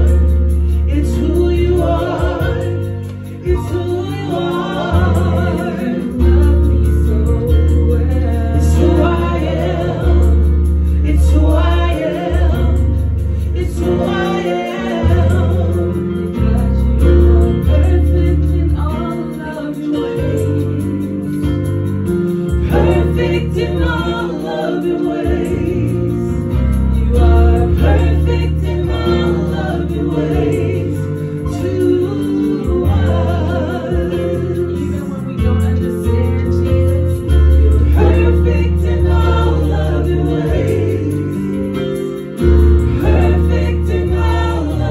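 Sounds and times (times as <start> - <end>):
deep bass line: 0.0 - 44.9
keyboard playing chords: 0.0 - 44.9
backing singers: 22.6 - 26.5, 27.1 - 35.0, 37.6 - 42.0, 42.8 - 44.9.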